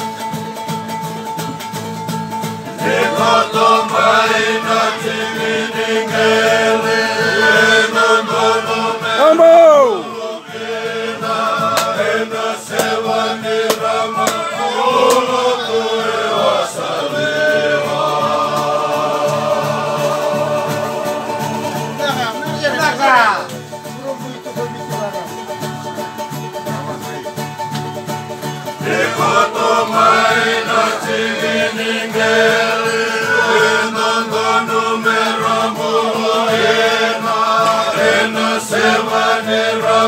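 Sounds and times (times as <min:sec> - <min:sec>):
group singing a chant: 0:02.7 - 0:22.2, 0:28.7 - 0:40.0.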